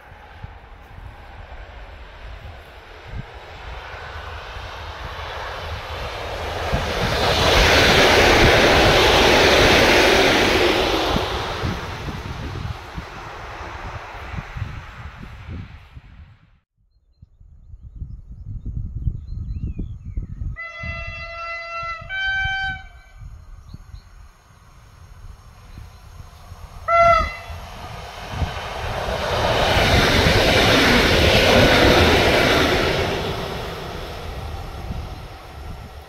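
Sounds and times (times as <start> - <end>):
train passing: 0.0 - 16.4, 21.0 - 36.0
two-tone train horn: 20.6 - 23.2, 26.9 - 27.6.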